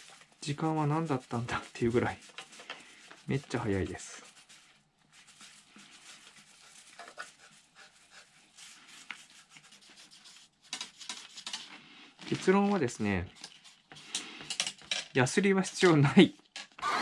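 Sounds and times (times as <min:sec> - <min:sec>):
cloth rubbing on cork: 0:00.0 - 0:14.2.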